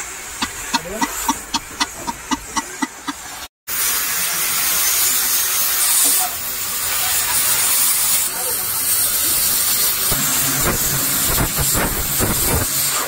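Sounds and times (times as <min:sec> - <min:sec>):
cutting torch flame hissing: 0:03.7 - 0:13.0.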